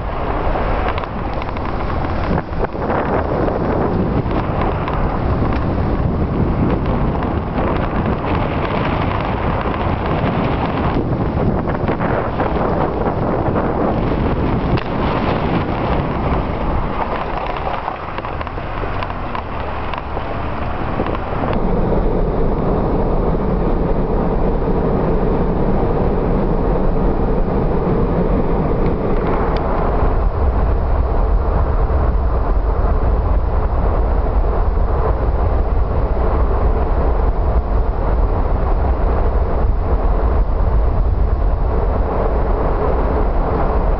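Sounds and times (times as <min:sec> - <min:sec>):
car road noise: 0:00.0 - 0:43.9.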